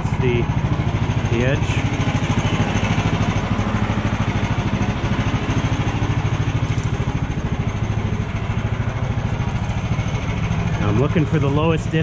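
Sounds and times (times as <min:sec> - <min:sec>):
small gasoline engine idling: 0:00.0 - 0:12.0.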